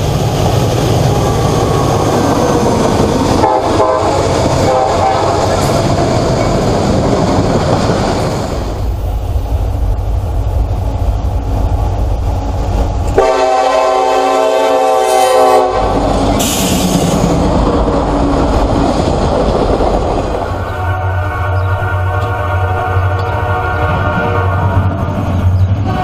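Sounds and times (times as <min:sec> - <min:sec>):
freight cars rumbling over rails: 0:00.0 - 0:26.0
locomotive air horn: 0:03.4 - 0:05.8, 0:13.2 - 0:16.9, 0:20.6 - 0:25.2, 0:25.8 - 0:26.0.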